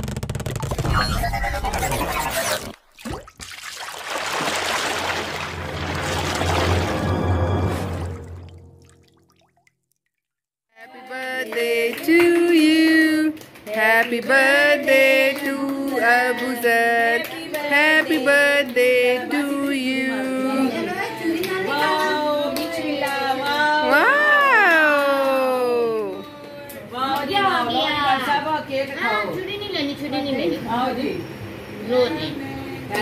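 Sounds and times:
high voices singing birthday song: 10.8 - 24.4.

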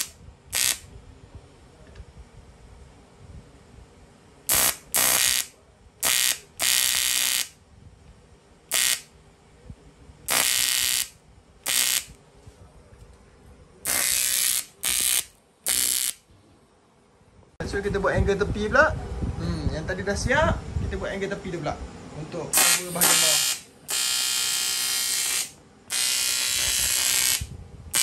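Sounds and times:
welding arc buzzing: 0.0 - 0.9, 4.5 - 7.6, 8.7 - 9.1, 10.3 - 12.2, 13.8 - 16.3, 22.6 - 28.0.

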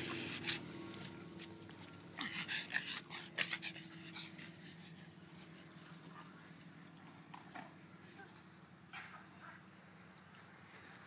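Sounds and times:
dog panting hard: 2.2 - 6.4.

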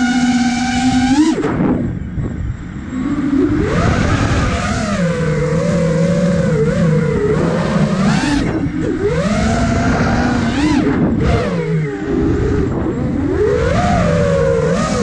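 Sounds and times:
drone motors whining: 0.0 - 15.0.

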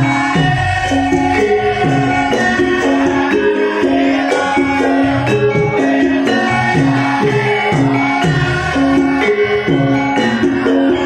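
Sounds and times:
gamelan metal keys melody: 0.0 - 11.0
steady percussion strokes: 0.0 - 11.0.

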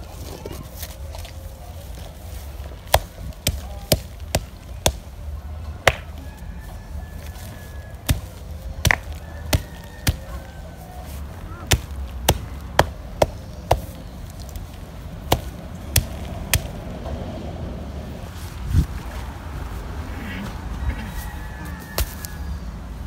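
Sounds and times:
stone pounding dried root: 2.8 - 5.2, 5.8 - 6.2, 7.2 - 10.6, 11.6 - 16.8, 21.9 - 22.4.

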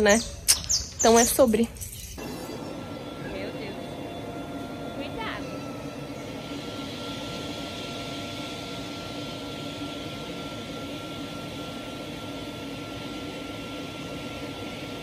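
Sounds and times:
air compressor hum and hiss: 0.0 - 15.0
thin high tone: 1.0 - 9.8.

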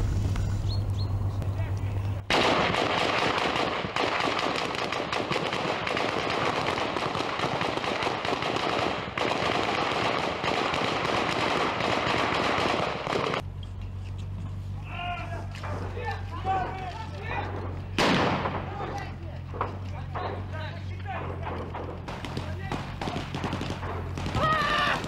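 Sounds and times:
automatic weapons fire: 2.3 - 13.4, 17.9 - 18.9, 21.4 - 25.0.

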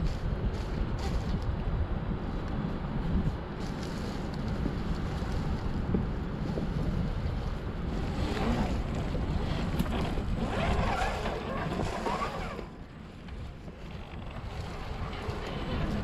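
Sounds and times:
wind on microphone: 0.0 - 16.0
rc car rumbling over rocks: 7.8 - 16.0.

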